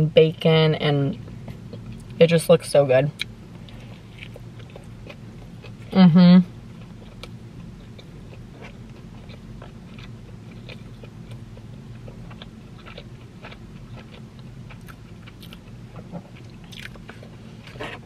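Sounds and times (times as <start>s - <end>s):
low steady hum: 0.0s - 18.0s
person chewing food: 3.2s - 6.0s, 6.8s - 18.0s.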